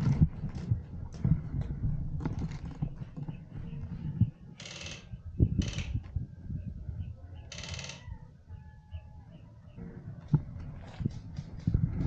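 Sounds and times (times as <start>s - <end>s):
gear rustling and thumping: 0.0s - 3.6s.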